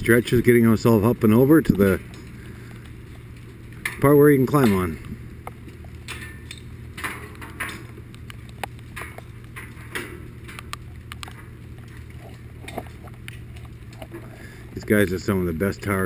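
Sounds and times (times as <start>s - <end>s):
raindrops tapping: 0.0s - 16.0s
steady low hum: 0.0s - 16.0s.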